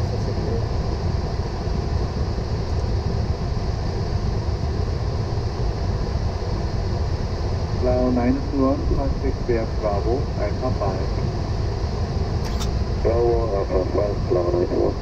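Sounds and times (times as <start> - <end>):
aircraft cockpit low rumble: 0.0 - 15.0.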